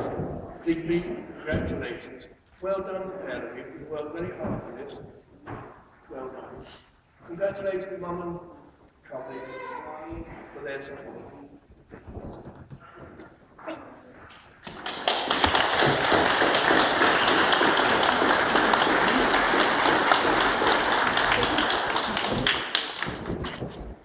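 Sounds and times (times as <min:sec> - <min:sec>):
people clapping: 0:14.3 - 0:24.0.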